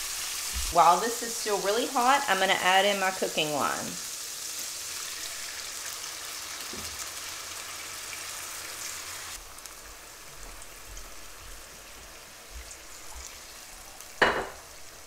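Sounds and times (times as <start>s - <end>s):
food sizzling in a skillet: 0.0s - 15.0s.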